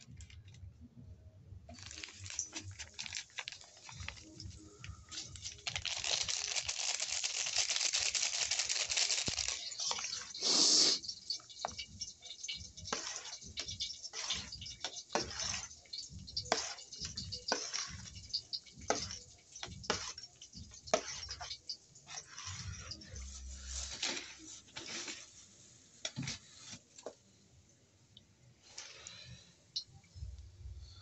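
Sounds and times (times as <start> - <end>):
plastic packet crinkling: 1.7 - 21.5.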